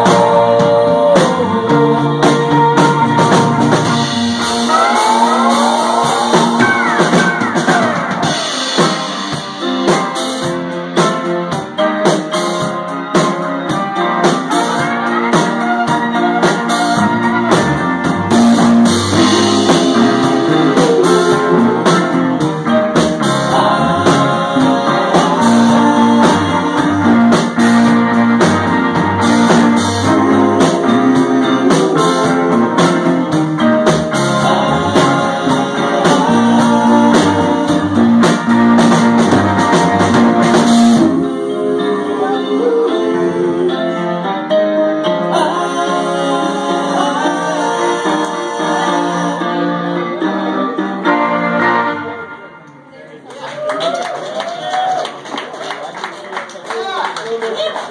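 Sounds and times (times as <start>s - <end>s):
drum kit: 0.0s - 43.4s
bass line: 0.0s - 53.0s
sliding guitar notes: 13.7s - 53.0s.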